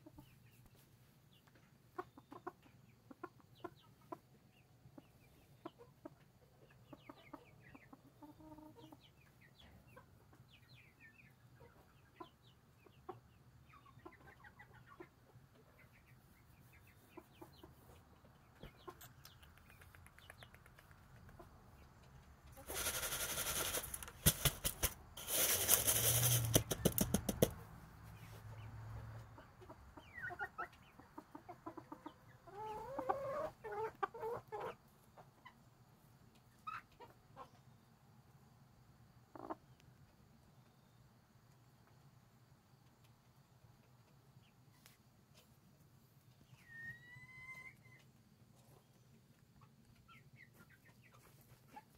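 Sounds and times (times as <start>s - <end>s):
chickens clucking: 0.0s - 51.9s
loud rustling: 22.6s - 27.0s.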